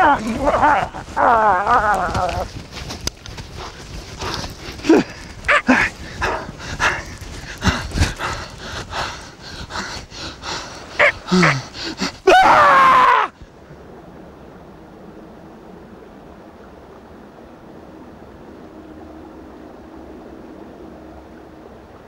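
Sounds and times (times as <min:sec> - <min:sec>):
animal snarls and yelps: 0:00.0 - 0:02.5, 0:04.8 - 0:07.0, 0:11.0 - 0:13.3.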